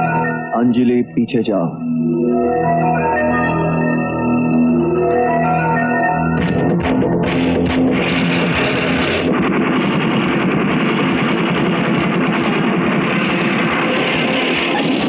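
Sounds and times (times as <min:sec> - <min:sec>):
rock background music: 0:04.6 - 0:13.1.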